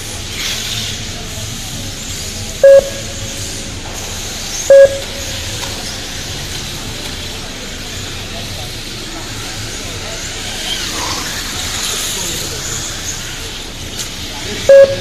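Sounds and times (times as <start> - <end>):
short electronic beeps: 2.6 - 3.5, 4.7 - 5.6, 14.7 - 15.0.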